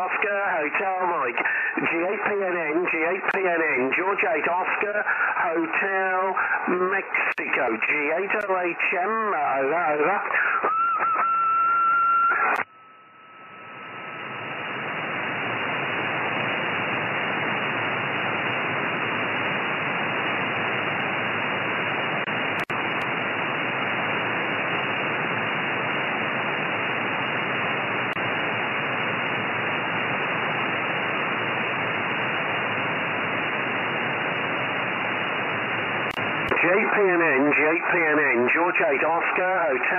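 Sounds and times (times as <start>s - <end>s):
radio band noise hiss: 0.0s - 12.7s, 13.5s - 39.9s
radio signal whistle: 10.4s - 14.3s.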